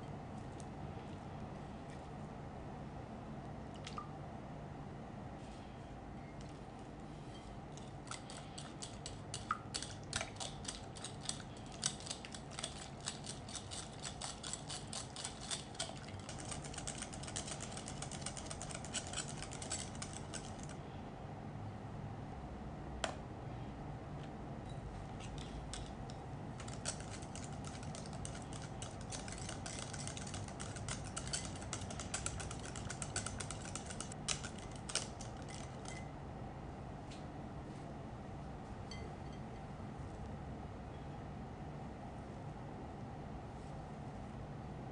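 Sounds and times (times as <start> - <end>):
whisk clicking against glass bowl: 8.1 - 20.7, 26.6 - 36.1.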